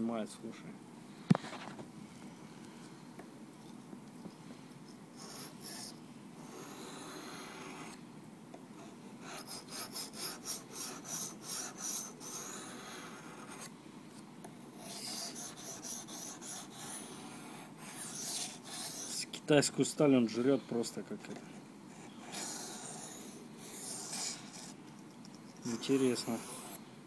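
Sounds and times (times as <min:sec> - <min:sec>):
knife scraping on whetstone: 0:25.6 - 0:26.8.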